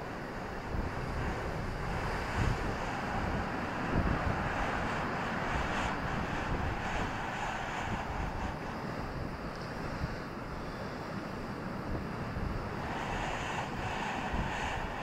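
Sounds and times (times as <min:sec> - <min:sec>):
sea surf breaking: 0:00.0 - 0:15.0
wind buffeting microphone: 0:00.0 - 0:15.0.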